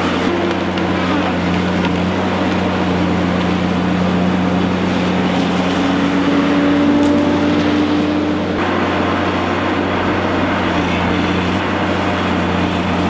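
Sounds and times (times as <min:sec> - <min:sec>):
diesel engine and hydraulics running: 0:00.0 - 0:13.0
saw cutting through tree trunk: 0:00.0 - 0:13.0
higher hum: 0:02.7 - 0:13.0.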